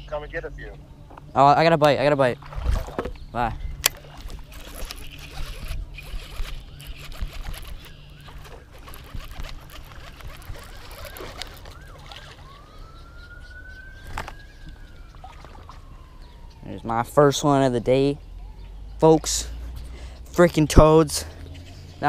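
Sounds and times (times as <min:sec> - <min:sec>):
distant fire engine siren: 0:10.3 - 0:19.6.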